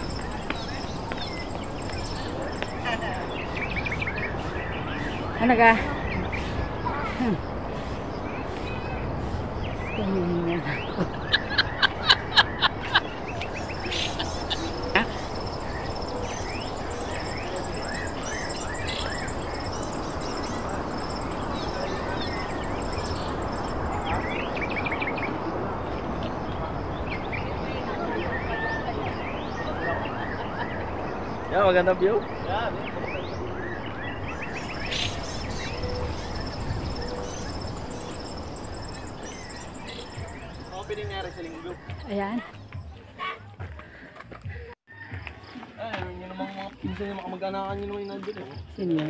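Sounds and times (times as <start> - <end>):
birds chirping: 0.0 - 44.8
loud high calls: 11.2 - 24.6
high rapid insect trill: 11.3 - 24.8, 34.2 - 41.8.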